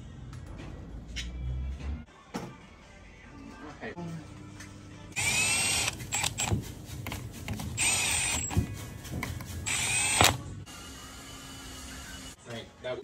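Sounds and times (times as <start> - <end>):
cordless driver whining: 5.2 - 6.5, 9.7 - 10.4.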